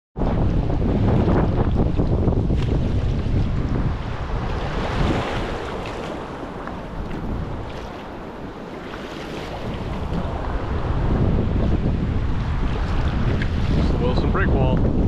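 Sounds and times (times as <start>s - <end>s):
waves slapping: 0.2s - 15.0s
wind buffeting microphone: 0.2s - 15.0s
paddle splashing water: 1.0s - 11.0s, 12.4s - 14.2s.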